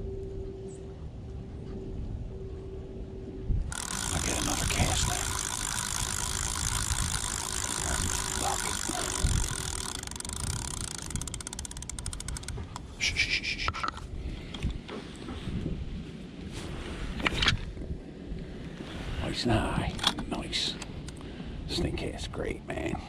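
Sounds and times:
fishing reel clicking and whirring: 3.7s - 13.6s.

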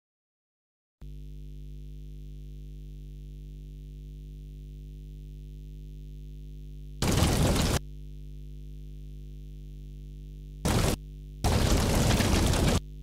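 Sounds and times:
low hum of held tones: 1.0s - 13.0s
loud burst of noise: 7.0s - 7.8s, 10.6s - 12.8s.

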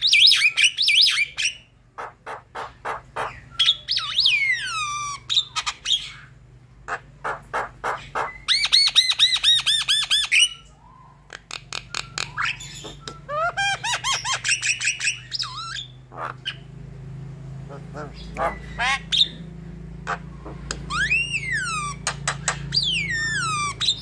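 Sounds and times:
bird clicks and chatter: 11.3s - 13.3s, 20.1s - 24.0s.

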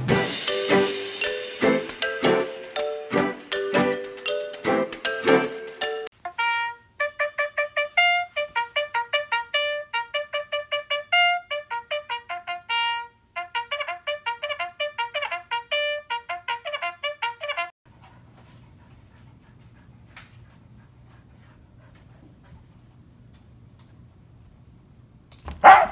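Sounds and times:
brass melody: 0.0s - 17.7s.

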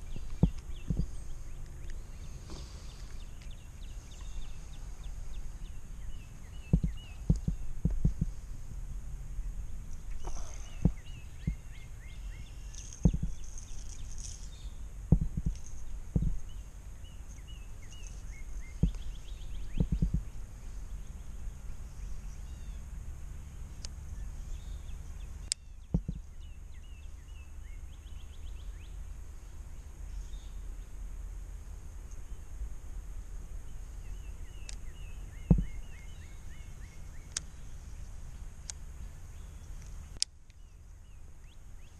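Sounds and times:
small birds chirping faintly: 0.0s - 41.9s
wind rumbling on microphone: 0.0s - 41.9s
handling thumps and knocks: 0.3s - 1.1s, 6.7s - 8.4s, 12.9s - 13.5s, 15.1s - 16.4s, 19.8s - 20.3s, 25.9s - 26.2s, 35.5s - 35.7s.

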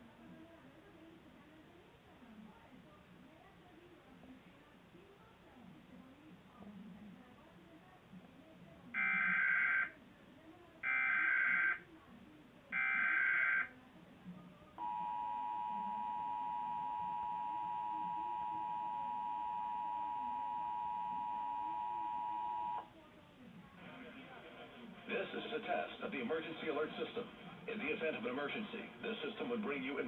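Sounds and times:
two-tone attention signal: 14.8s - 22.8s.

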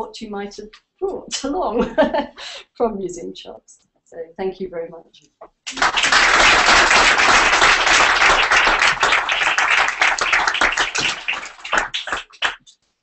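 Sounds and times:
audience applauding: 5.7s - 12.7s.

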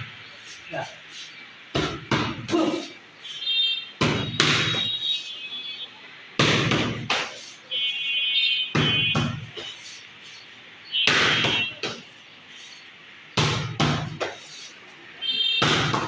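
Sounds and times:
boxing gloves hitting pads: 1.7s - 2.8s, 4.0s - 5.0s, 6.4s - 7.4s, 8.7s - 9.8s, 11.0s - 12.1s, 13.4s - 14.4s, 15.6s - 16.0s.

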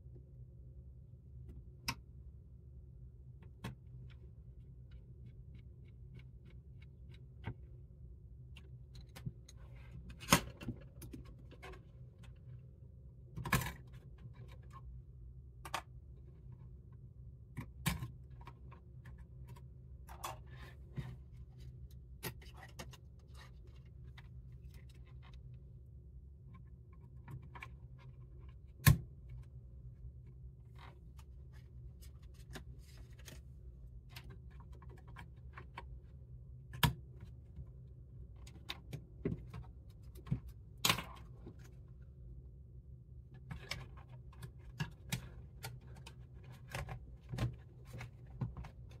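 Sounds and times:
clicks taps and scrapes: 3.4s - 7.8s, 15.6s - 25.7s, 30.3s - 41.8s, 43.4s - 49.0s.

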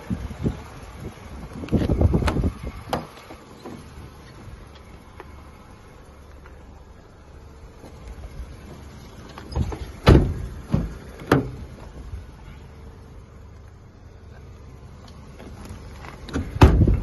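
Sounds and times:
car doors clunking shut: 1.7s - 5.4s, 7.8s - 12.2s, 15.0s - 17.0s.

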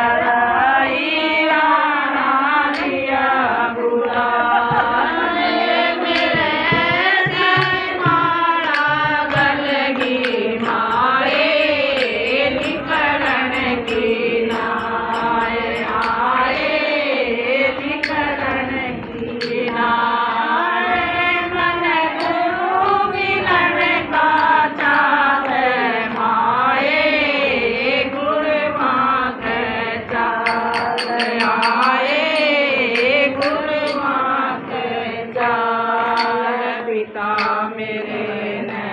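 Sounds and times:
women singing in unison: 0.0s - 38.9s
hand-clapping: 2.6s - 3.2s, 4.0s - 23.0s, 24.2s - 26.4s, 30.0s - 38.8s
hand drum beat: 4.5s - 16.9s, 17.6s - 20.7s, 30.2s - 34.3s, 36.1s - 36.5s, 37.3s - 37.7s.

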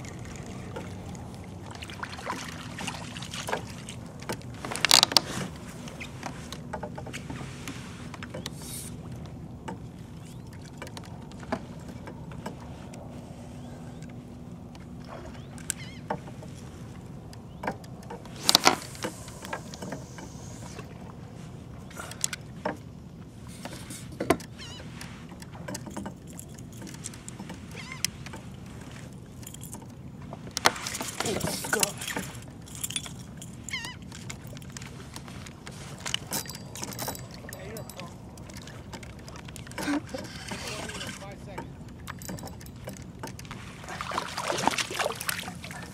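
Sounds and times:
water washing against hull: 0.0s - 13.7s, 24.5s - 45.9s
fishing gear knocking: 3.4s - 7.1s, 30.6s - 43.6s.

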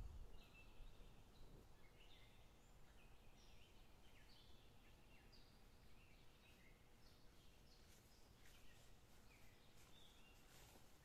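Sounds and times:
faint bird chirps: 0.1s - 11.0s
footsteps through tall grass: 7.8s - 11.0s.

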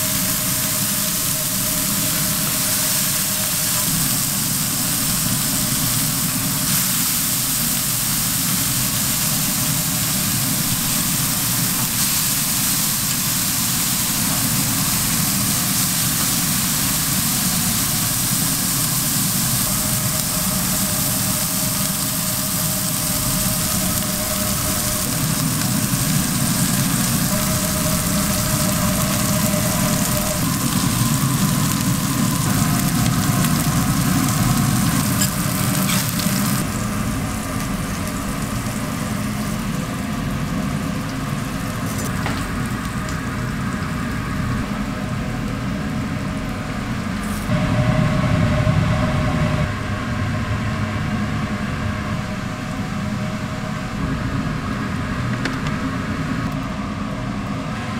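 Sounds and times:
meat sizzling on griddle: 0.0s - 44.5s
low mechanical drone: 0.0s - 57.9s.

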